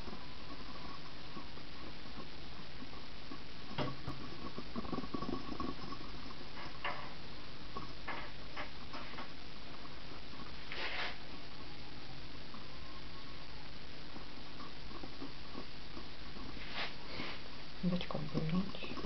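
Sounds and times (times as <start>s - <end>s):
rustles: 0.0s - 11.7s, 12.4s - 19.0s
faint hum: 0.0s - 19.0s
steady background hiss: 0.0s - 19.0s.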